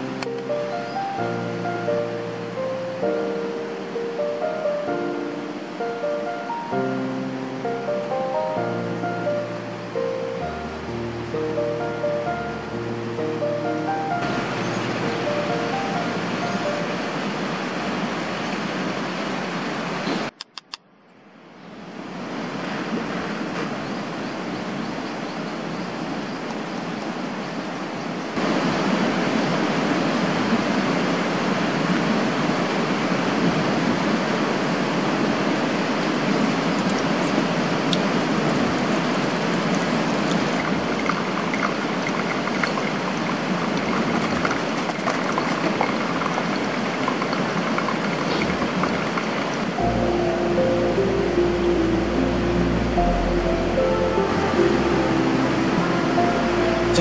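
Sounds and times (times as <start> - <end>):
stream flowing over stones: 13.7 - 20.3, 24.2 - 52.2.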